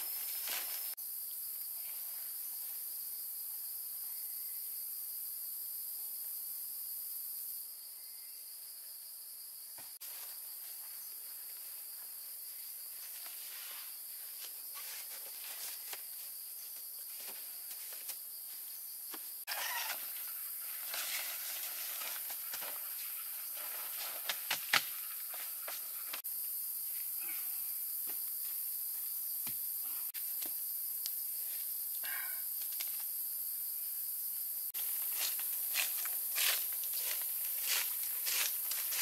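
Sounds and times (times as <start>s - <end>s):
high-pitched insect chorus: 0.0s - 39.0s
tent fabric rustling: 13.0s - 18.1s, 20.7s - 24.5s.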